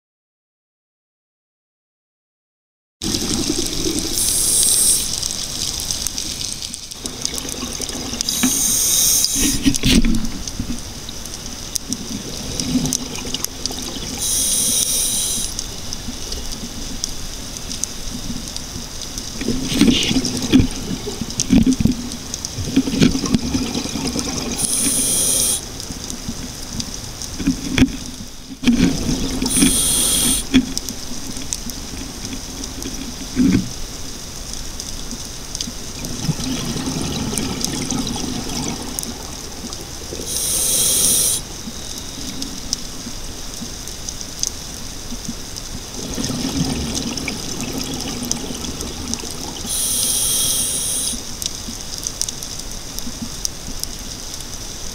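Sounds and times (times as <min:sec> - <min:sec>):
bubbling of exhaled air: 0:03.0 - 0:10.0, 0:12.0 - 0:15.6, 0:19.4 - 0:25.7, 0:28.7 - 0:30.5, 0:35.9 - 0:43.1, 0:45.8 - 0:51.3
regulator hiss on inhale: 0:04.1 - 0:05.4, 0:08.2 - 0:09.8, 0:14.2 - 0:15.8, 0:24.6 - 0:25.7, 0:29.5 - 0:30.6, 0:40.2 - 0:42.5, 0:49.6 - 0:51.3.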